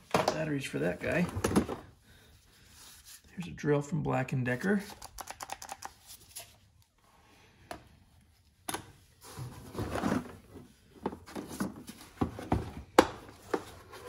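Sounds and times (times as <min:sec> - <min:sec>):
tools scraping and rustling: 0:09.2 - 0:14.0.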